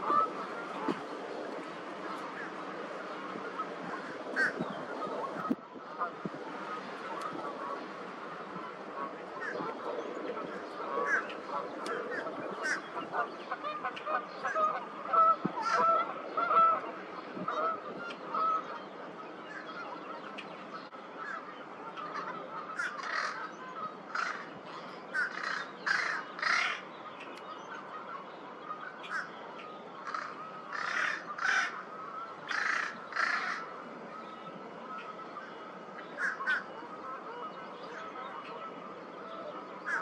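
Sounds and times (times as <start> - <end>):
crows calling: 0.0 - 18.8, 21.2 - 40.0.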